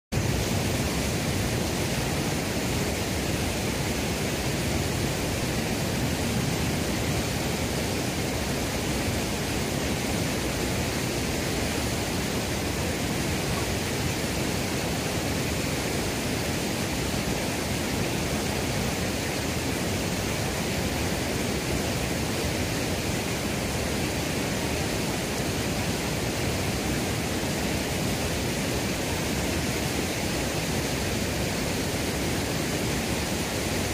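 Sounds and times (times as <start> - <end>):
steady rushing noise: 0.1 - 33.9.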